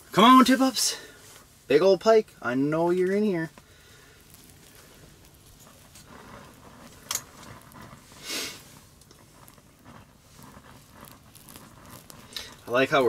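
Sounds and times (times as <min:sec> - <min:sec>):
faint rustles: 0:00.1 - 0:13.0
brief rustling hiss: 0:03.5 - 0:10.9.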